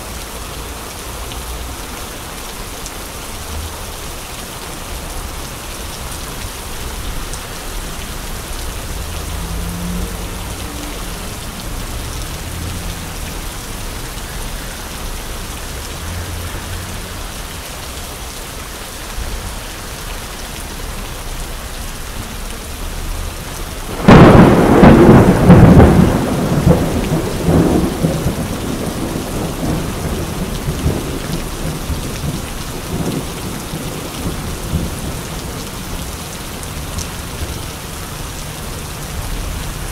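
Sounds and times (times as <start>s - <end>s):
rain on umbrella and pavement: 0.0s - 39.9s
thunderclap rumbling: 23.9s - 35.6s.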